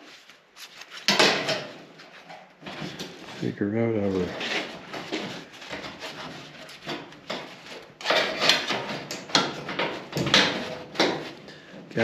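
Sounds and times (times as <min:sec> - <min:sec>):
steel strip scraping sheet metal: 0:04.2 - 0:11.4.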